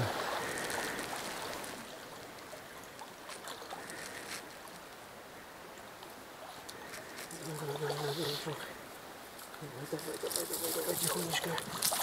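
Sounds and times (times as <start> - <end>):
river water flowing over pebbles: 0.0 - 12.0
faint small splashes: 10.0 - 12.0.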